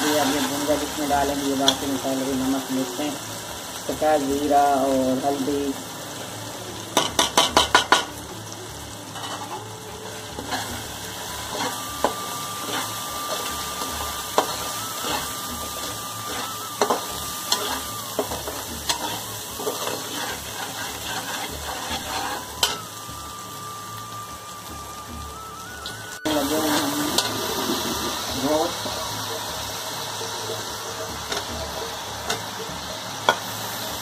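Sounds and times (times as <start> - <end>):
food sizzling: 0.0 - 34.0
metal clinks on pan: 7.0 - 8.1
metal turner scraping a pan: 9.1 - 9.7, 10.4 - 22.8.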